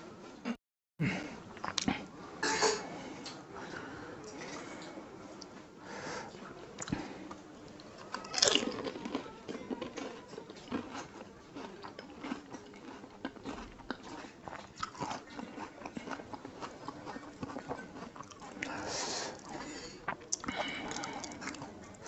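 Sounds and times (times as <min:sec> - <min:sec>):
person chewing crunchy food: 0:01.6 - 0:02.0, 0:07.7 - 0:22.0.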